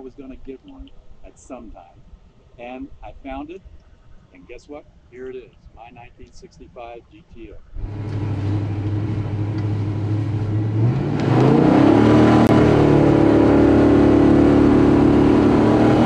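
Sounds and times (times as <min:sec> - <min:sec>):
car engine revving: 0:07.8 - 0:16.0
tires spinning: 0:07.8 - 0:16.0.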